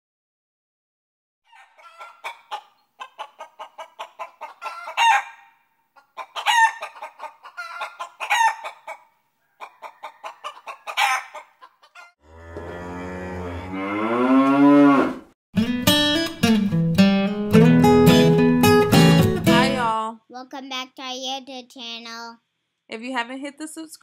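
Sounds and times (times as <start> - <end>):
chickens clucking: 1.5 - 12.2
drawn-out chicken calls: 1.5 - 12.2.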